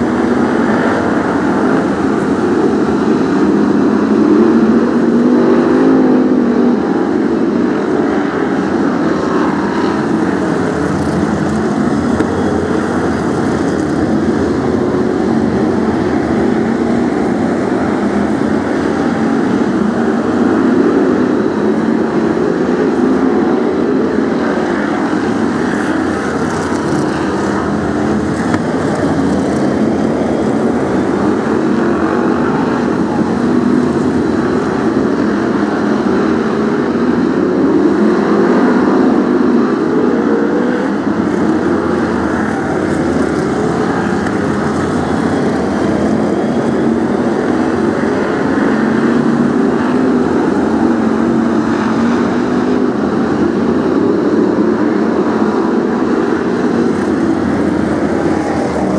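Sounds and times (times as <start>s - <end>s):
race car engines: 0.0s - 58.9s.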